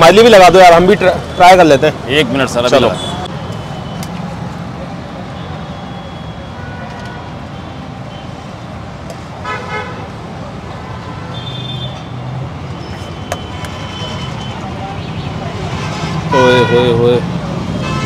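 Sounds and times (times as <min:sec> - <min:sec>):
street traffic rumbling: 0:00.0 - 0:18.0
vehicle horn toots: 0:15.9 - 0:17.0, 0:17.8 - 0:18.0.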